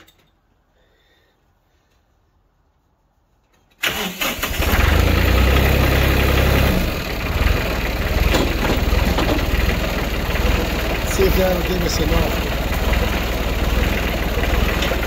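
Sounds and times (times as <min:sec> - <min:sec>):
tractor engine starting and running: 0:03.4 - 0:15.0.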